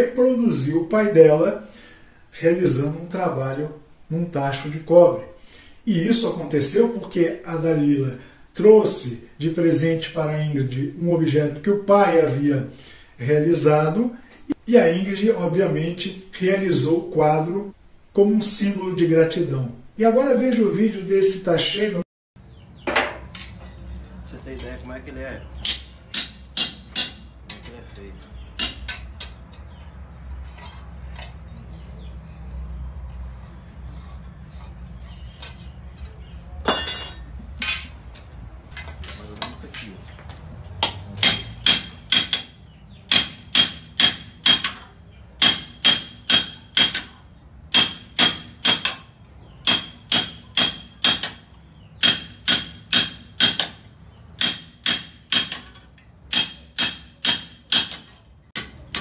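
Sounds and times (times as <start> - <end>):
hammer striking copper: 25.6 - 27.4, 28.6 - 29.3, 36.6 - 37.8, 40.8 - 59.0.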